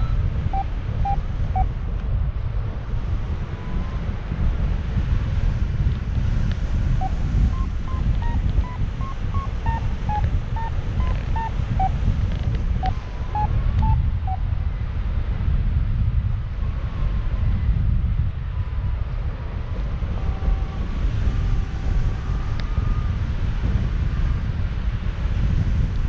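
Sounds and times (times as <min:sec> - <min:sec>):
variometer short beeps: 0:00.0 - 0:01.7, 0:07.0 - 0:12.0, 0:12.8 - 0:14.4
wind buffeting microphone: 0:00.0 - 0:26.0.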